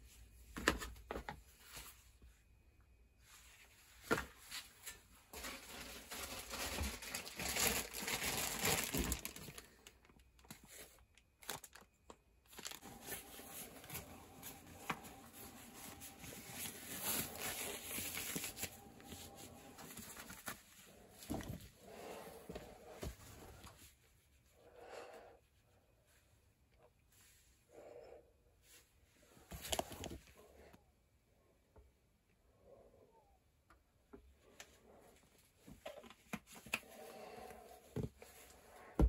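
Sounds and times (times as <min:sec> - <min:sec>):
plastic bag crinkling: 0:05.3 - 0:20.6
rubber gloves pulled on: 0:12.6 - 0:23.7.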